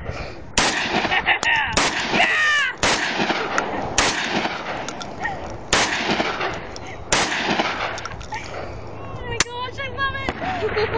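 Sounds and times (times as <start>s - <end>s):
shotgun shots: 0.6s - 5.1s, 5.7s - 8.2s.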